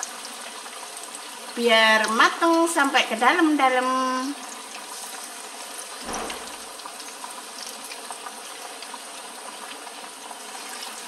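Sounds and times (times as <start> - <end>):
chicken sizzling in hot oil: 0.0 - 11.0
low bump: 6.0 - 6.8.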